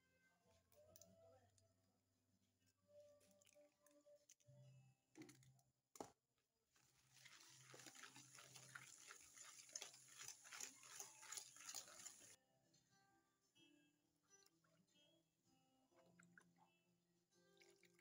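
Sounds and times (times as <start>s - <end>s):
whisk beating in metal bowl: 7.2s - 12.4s.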